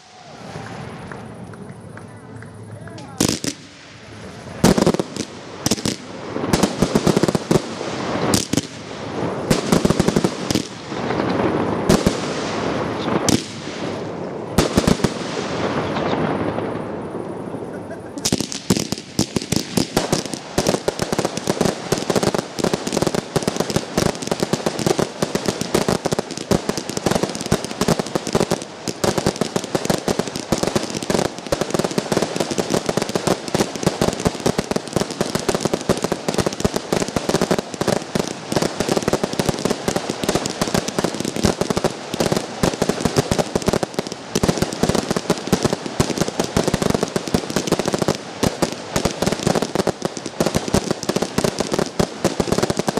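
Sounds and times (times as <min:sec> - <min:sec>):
fireworks launch bangs and pops: 0:00.0 - 0:52.9.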